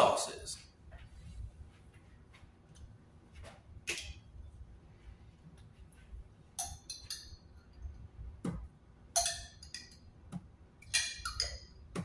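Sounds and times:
metal spoon clinking against jar: 6.6s - 7.4s, 9.2s - 10.0s, 10.8s - 11.7s.

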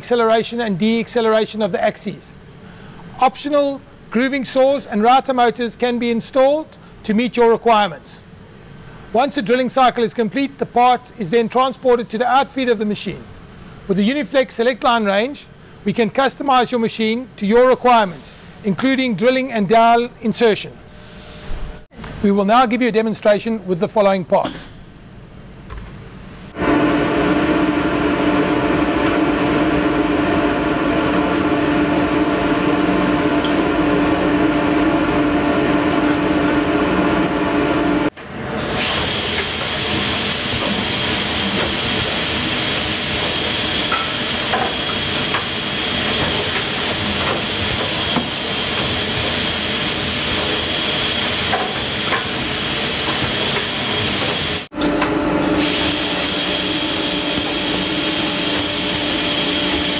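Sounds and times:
machine hum: 24.8s - 59.9s
rushing hiss with high whine: 38.6s - 54.7s, 55.6s - 59.9s.

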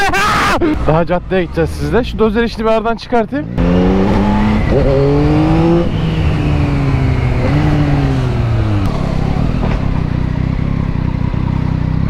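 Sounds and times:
motorcycle engine revving: 3.4s - 12.0s.

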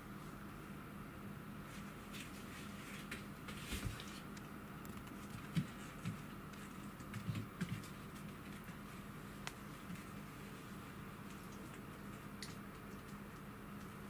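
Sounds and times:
paws scuffling on foam mat: 1.6s - 4.3s, 5.1s - 12.3s.

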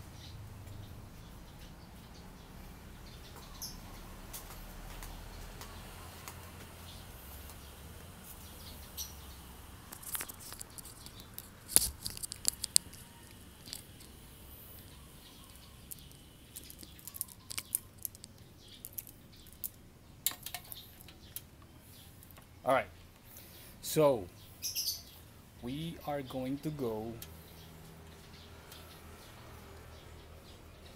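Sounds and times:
plastic parts clicking and tapping: 9.9s - 14.1s, 15.9s - 21.6s.

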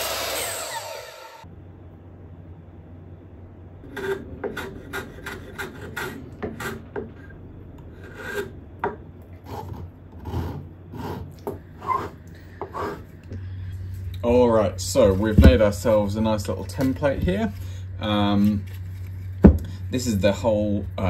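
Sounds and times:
hand plane shaving wood: 3.9s - 7.3s, 7.9s - 8.5s, 9.4s - 13.2s.

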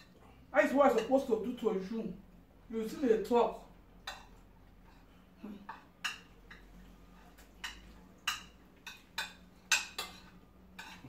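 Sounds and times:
cutlery clinking on plates: 5.0s - 11.0s.

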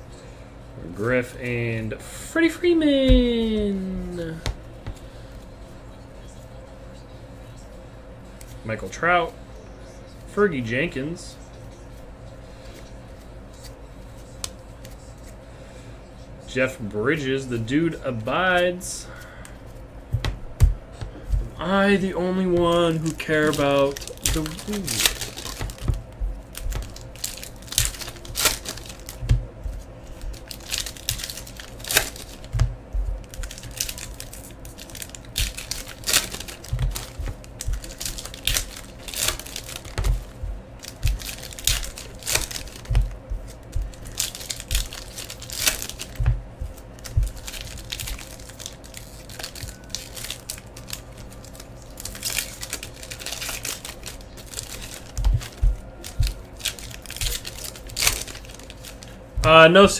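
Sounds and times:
foil wrappers crinkling and tearing: 21.2s - 59.9s.

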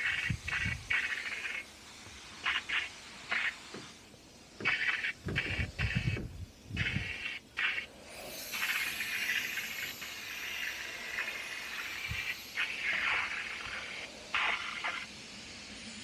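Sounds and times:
powder coating gun hissing: 0.0s - 16.0s.

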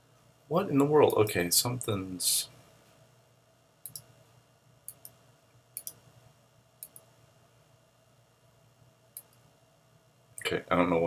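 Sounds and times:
computer mouse clicking: 3.8s - 4.1s, 4.9s - 5.2s, 5.8s - 6.0s, 6.8s - 7.1s, 9.2s - 9.4s.

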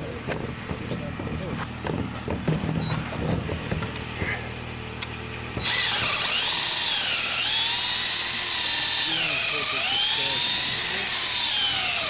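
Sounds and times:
cordless drill whining: 5.6s - 12.0s.

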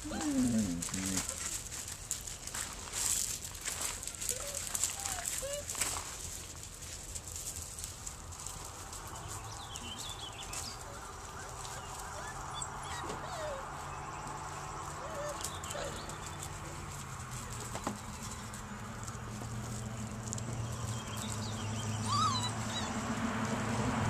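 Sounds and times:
puppies whimpering: 0.0s - 1.6s, 4.0s - 5.8s, 10.5s - 16.8s, 22.0s - 23.1s.

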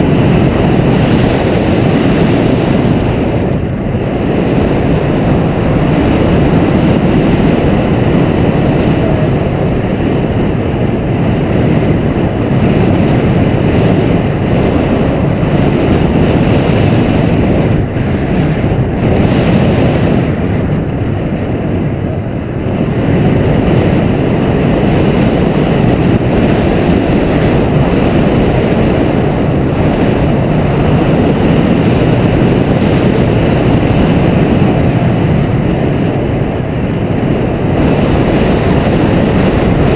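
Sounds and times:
wind rushing over microphone: 0.0s - 39.9s.

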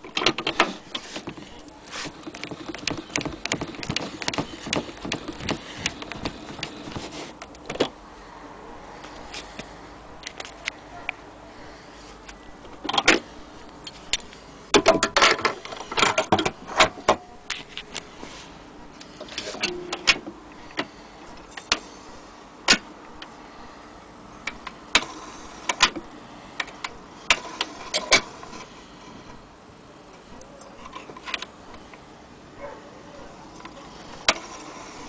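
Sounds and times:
gramophone clicks and knocks: 2.2s - 7.0s.

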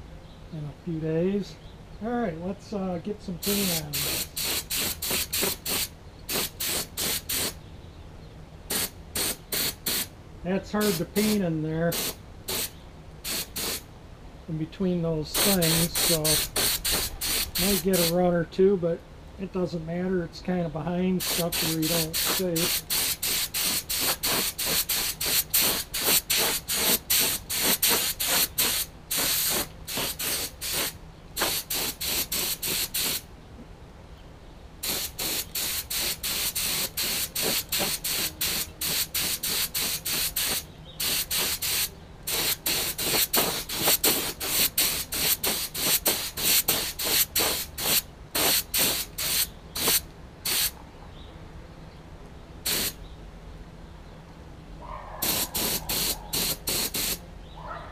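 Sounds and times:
paint spray gun hissing: 3.4s - 7.6s, 8.7s - 10.1s, 10.8s - 13.8s, 15.3s - 18.2s, 21.2s - 33.2s, 34.8s - 50.8s, 52.6s - 53.0s, 55.2s - 57.2s.

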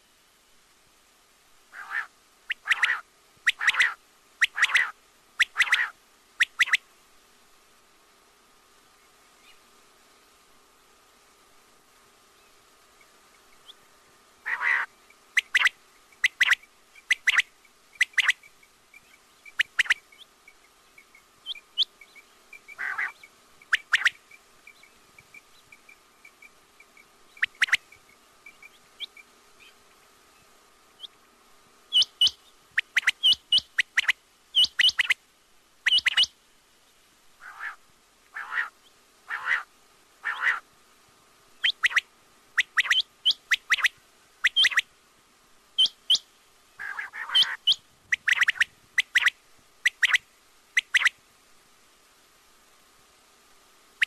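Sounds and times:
faint steady hum: 0.0s - 54.0s
quail calling: 1.7s - 6.8s, 14.4s - 18.5s, 19.5s - 20.3s, 22.6s - 24.3s, 27.3s - 27.8s, 31.9s - 35.2s, 35.8s - 36.3s, 37.4s - 40.7s, 41.6s - 44.9s, 45.8s - 46.2s, 46.8s - 50.2s, 50.8s - 51.2s.

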